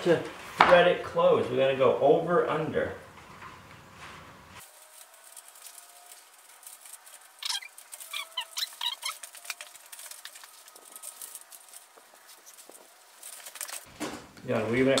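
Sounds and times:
wire clicking and rattling: 4.7 - 15.0.

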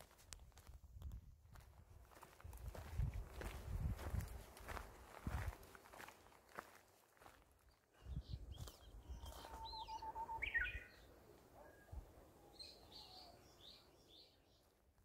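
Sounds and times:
birds chirping and trilling: 8.0 - 14.7.

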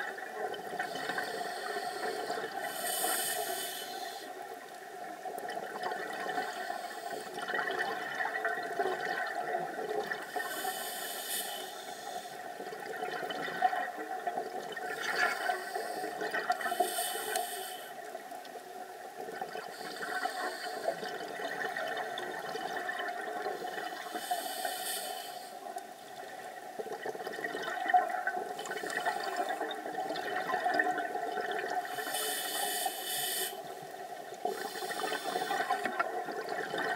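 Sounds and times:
short hiss of breath: 1.3 - 4.2, 10.4 - 12.3, 16.7 - 17.9, 24.2 - 25.6, 32.0 - 33.6.

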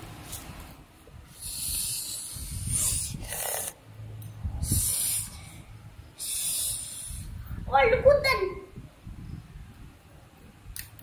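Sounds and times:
breathy hissing: 1.3 - 3.8, 4.6 - 7.4.

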